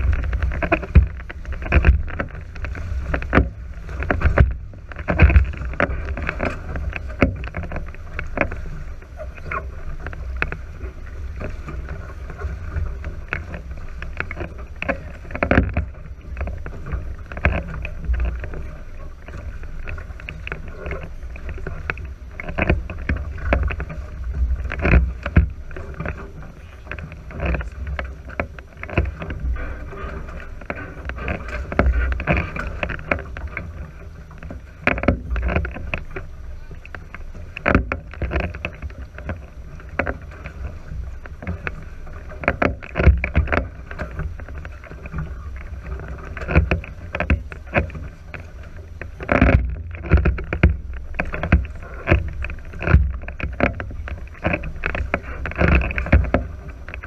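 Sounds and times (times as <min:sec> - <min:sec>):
sharp knocks and splashes: 0:00.0 - 0:57.0
water washing along hulls: 0:00.0 - 0:57.0
wind on microphone: 0:00.0 - 0:57.0.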